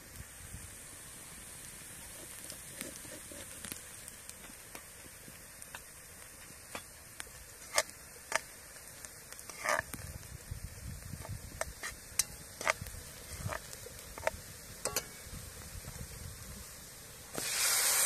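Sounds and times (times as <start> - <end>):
eggs sizzling in oil: 0.0 - 18.0
sharp pops: 2.0 - 10.4, 17.3 - 18.0
spoon scraping pot: 9.5 - 9.9, 11.7 - 13.6.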